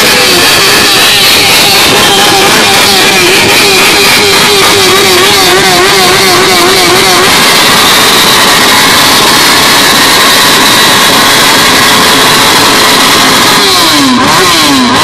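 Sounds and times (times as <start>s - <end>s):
motorcycle engine revving: 0.0s - 15.0s
ragged exhaust noise: 0.0s - 15.0s.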